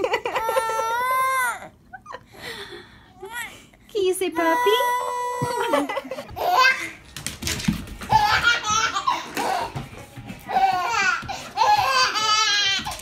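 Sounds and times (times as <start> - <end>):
baby laughing: 0.0 - 2.2, 5.4 - 7.0, 8.1 - 9.8.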